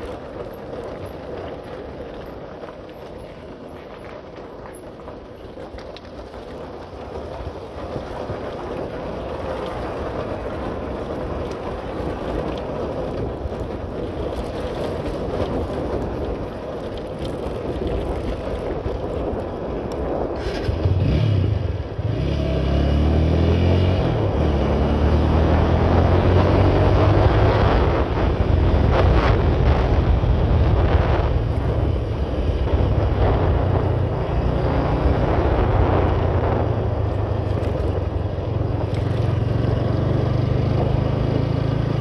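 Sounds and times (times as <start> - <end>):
road noise: 0.0 - 42.0
vehicle engine speeding up: 20.4 - 42.0.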